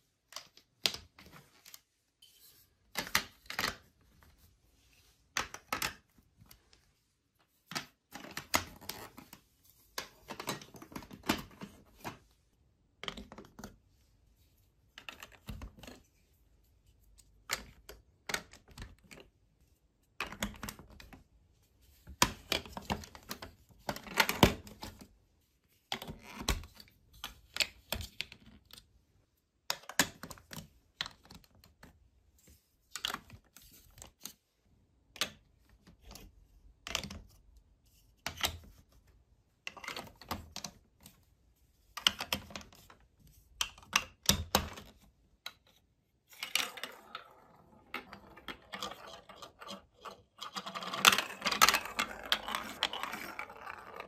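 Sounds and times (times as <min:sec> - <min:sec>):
plastic blocks clicking and snapping: 0:00.2 - 0:01.8, 0:02.9 - 0:04.0, 0:05.3 - 0:06.6, 0:07.7 - 0:09.4, 0:10.0 - 0:12.2, 0:12.9 - 0:13.8, 0:15.0 - 0:16.0, 0:17.2 - 0:19.4, 0:29.6 - 0:32.0, 0:32.9 - 0:34.4, 0:35.0 - 0:37.4, 0:42.0 - 0:54.0.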